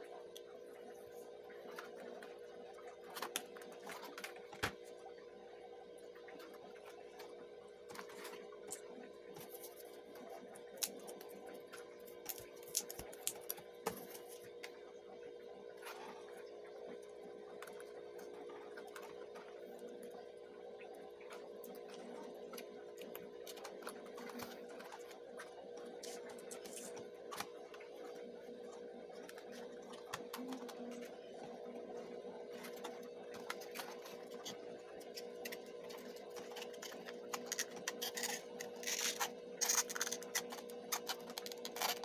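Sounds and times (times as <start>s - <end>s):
steady hum: 0.0s - 42.0s.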